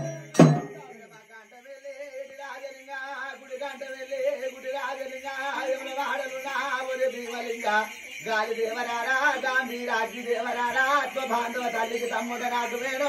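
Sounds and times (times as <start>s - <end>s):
drum stroke ringing: 0.0s - 0.9s
man chanting a devotional song: 0.0s - 13.0s.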